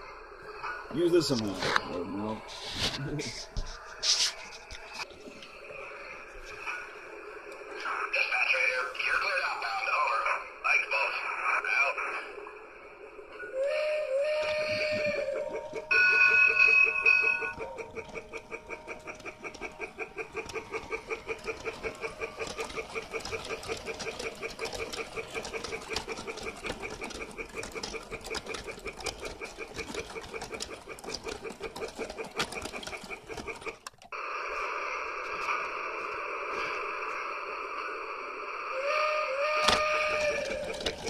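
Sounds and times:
rhythmic train chuffing: 0:00.0 - 0:05.1, 0:05.7 - 0:41.0
wheels clicking on track: 0:00.7 - 0:02.5, 0:13.6 - 0:34.2, 0:38.8 - 0:41.0
toy steam whistle: 0:13.4 - 0:18.3, 0:38.5 - 0:41.0.

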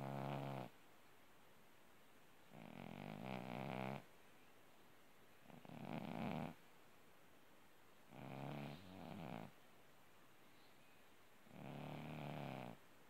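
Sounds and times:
cat snoring: 0:00.0 - 0:00.7, 0:02.5 - 0:04.1, 0:05.4 - 0:06.6, 0:08.1 - 0:09.5, 0:11.5 - 0:12.8.

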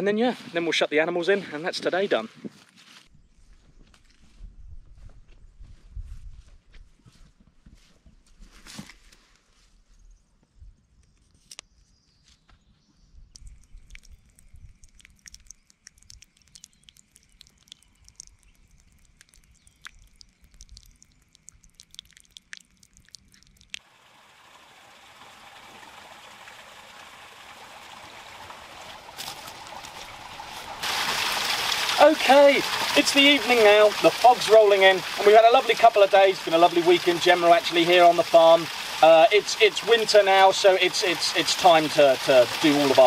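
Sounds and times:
faint ticks and clicks: 0:13.3 - 0:23.8
waterfall trickling into pool: 0:13.4 - 0:43.0.

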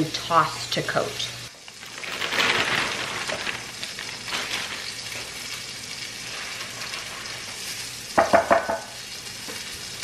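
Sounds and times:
plastic bag crinkling: 0:01.6 - 0:07.7
spinach leaves rustling: 0:01.7 - 0:07.6.

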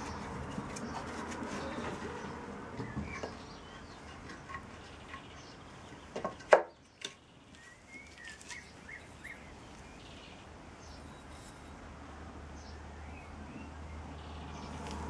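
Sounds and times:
small birds chirping: 0:00.0 - 0:11.8, 0:12.5 - 0:15.0
sharp wooden knock: 0:06.2 - 0:06.8.

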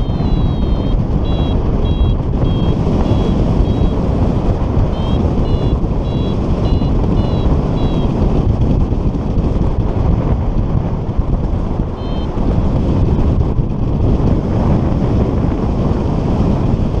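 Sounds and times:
variometer beeping: 0:00.0 - 0:08.6, 0:11.9 - 0:12.6
wind rush on microphone: 0:00.0 - 0:17.0.

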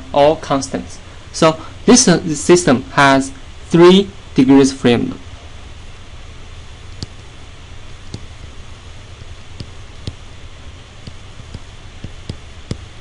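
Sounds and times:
steady hiss and hum: 0:00.0 - 0:13.0
stylus tapping on screen: 0:06.9 - 0:07.3, 0:08.0 - 0:08.7, 0:09.5 - 0:10.3, 0:11.0 - 0:13.0.

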